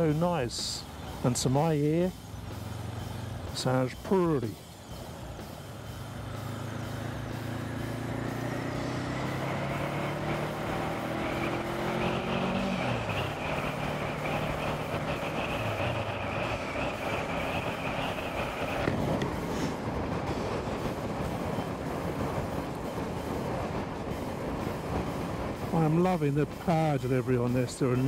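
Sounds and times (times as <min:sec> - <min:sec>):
wind and road noise: 0:00.0 - 0:28.0
motorcycle engine accelerating: 0:02.3 - 0:03.5, 0:05.7 - 0:19.4.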